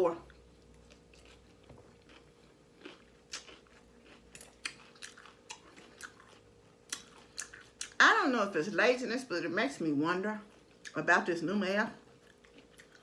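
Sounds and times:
salad chewing crunches: 0.2s - 8.0s, 12.0s - 13.0s.

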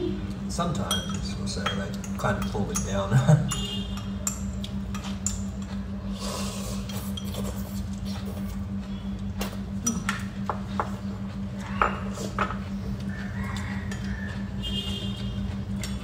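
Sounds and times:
people slurping and chewing noodles: 0.0s - 16.0s
steady low hum: 0.0s - 16.0s
chopsticks and bowls clicking: 15.8s - 16.0s.

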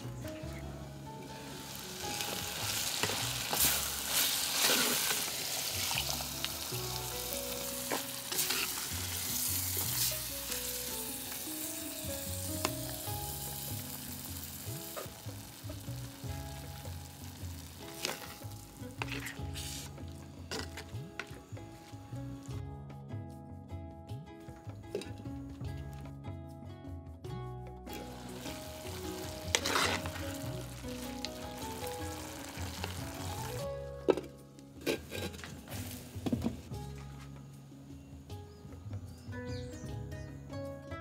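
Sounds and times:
vegetables sizzling in pot: 0.0s - 21.3s, 27.9s - 36.6s
spoon scraping clay pot: 19.0s - 19.9s, 29.5s - 30.3s, 34.2s - 35.5s.

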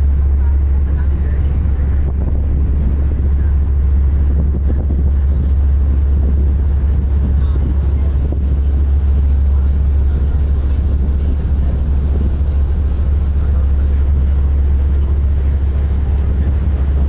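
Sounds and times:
ferry engine rumble: 0.0s - 17.0s
wind buffeting microphone: 0.0s - 17.0s.

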